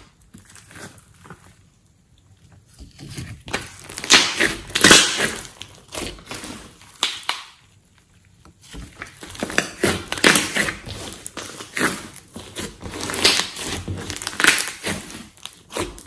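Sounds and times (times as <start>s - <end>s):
slime squished by hand: 3.4s - 16.0s.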